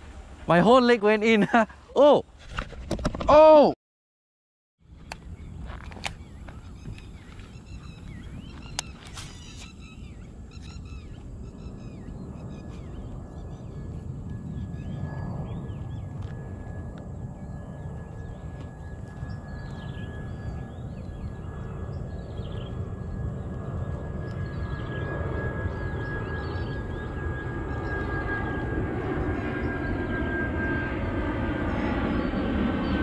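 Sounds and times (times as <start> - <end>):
birds chirping and calling: 5.0 - 13.8.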